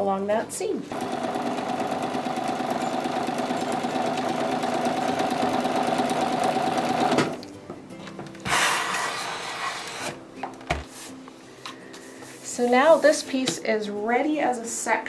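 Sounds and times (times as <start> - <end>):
sewing machine stitching: 0.9 - 7.4.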